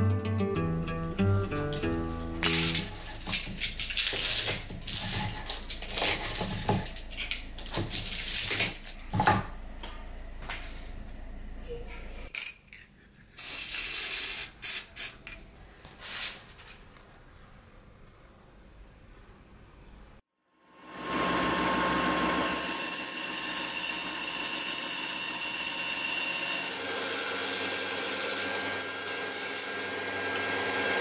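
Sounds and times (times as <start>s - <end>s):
aerosol spray can hissing: 13.4s - 15.1s.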